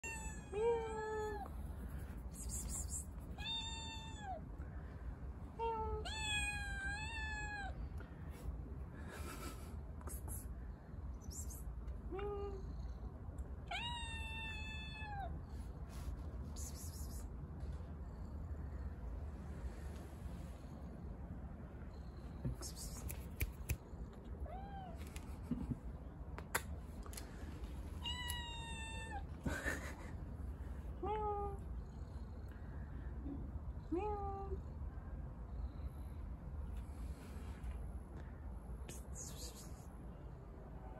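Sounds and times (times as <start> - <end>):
kitten meowing: 3.4 - 4.4, 6.0 - 7.7, 13.7 - 15.3, 28.0 - 29.2.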